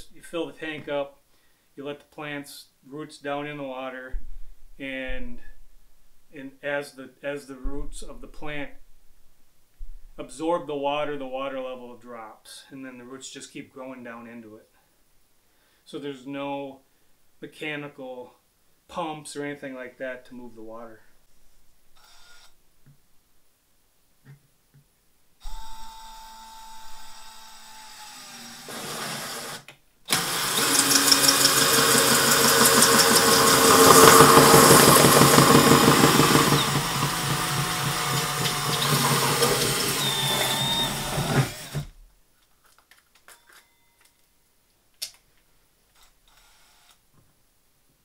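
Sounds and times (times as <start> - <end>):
drill cutting through plastic: 25.4 - 42.0.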